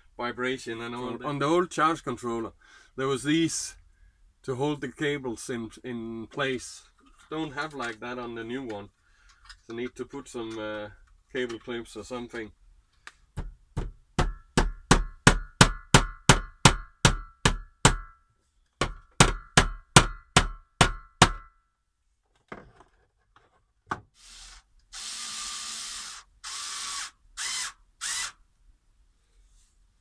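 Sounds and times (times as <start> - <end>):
short rasping bursts: 24.2 - 28.4.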